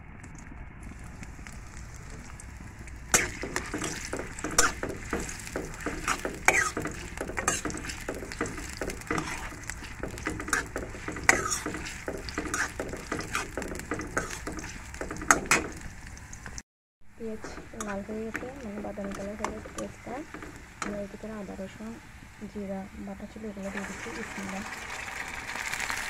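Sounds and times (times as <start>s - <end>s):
onions sizzling in oil: 0.9s - 16.6s, 17.2s - 26.0s
metal spatula scraping pan: 3.1s - 16.0s, 17.2s - 21.2s.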